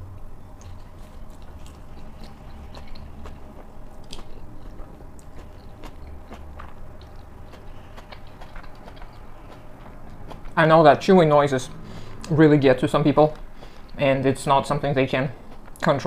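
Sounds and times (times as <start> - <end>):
person chewing noodles: 0.5 - 10.7, 13.3 - 14.0, 15.4 - 16.0.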